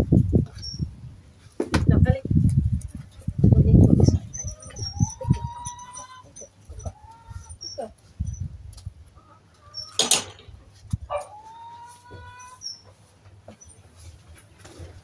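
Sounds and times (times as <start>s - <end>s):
dog whining: 4.1s - 7.9s.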